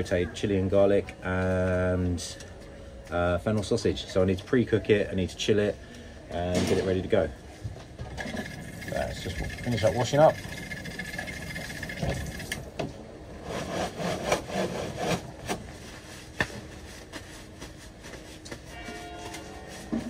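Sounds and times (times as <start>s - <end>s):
thin steady whine: 7.4s - 12.9s.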